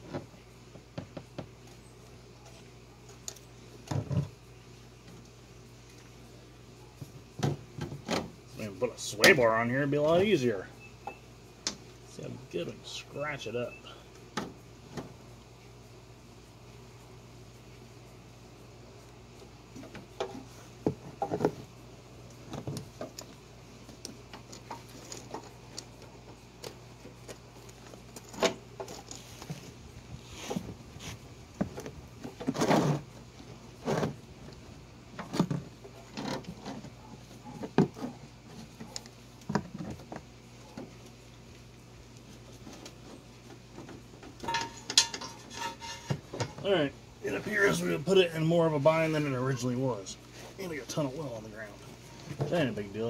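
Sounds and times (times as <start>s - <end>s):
steady low hum: 0.0s - 53.0s
metal pipe clinking and scraping: 44.4s - 46.6s.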